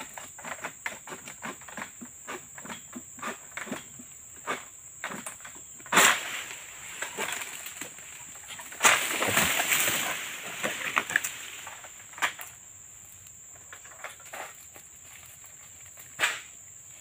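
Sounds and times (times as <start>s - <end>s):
high insect drone: 0.0s - 17.0s
rustling crash of palm leaves: 5.8s - 12.6s
sharp crack of palm frond: 5.9s - 12.6s, 16.0s - 16.6s.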